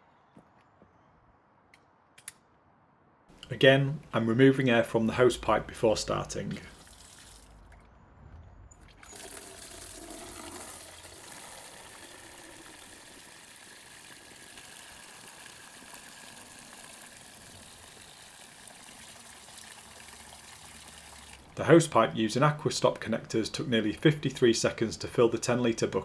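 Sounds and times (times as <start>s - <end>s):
water pouring into plastic bucket: 6.5s - 7.8s, 9.0s - 21.6s.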